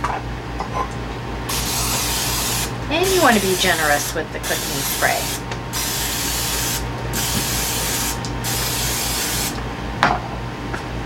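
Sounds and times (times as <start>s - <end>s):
aerosol spray hissing: 1.5s - 9.6s.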